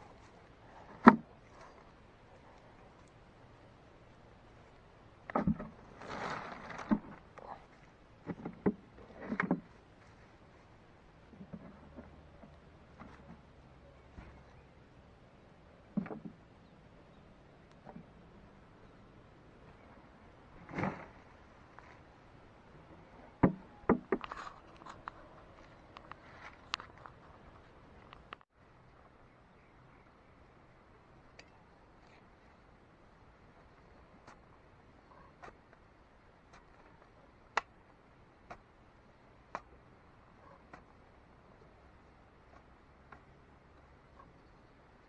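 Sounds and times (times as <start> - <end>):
weeds and soil rustling: 0.0 - 14.7.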